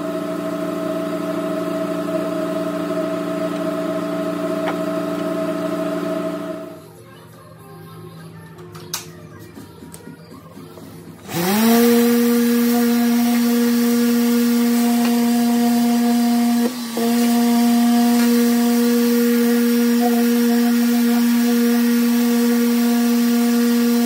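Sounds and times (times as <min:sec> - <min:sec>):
orbital sander humming: 0:11.2 - 0:24.0.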